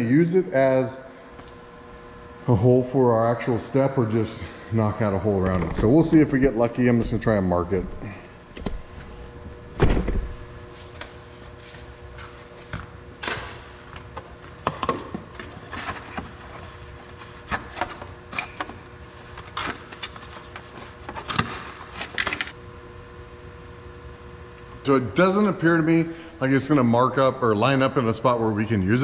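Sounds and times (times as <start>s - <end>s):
steady shop hum: 0.0s - 29.0s.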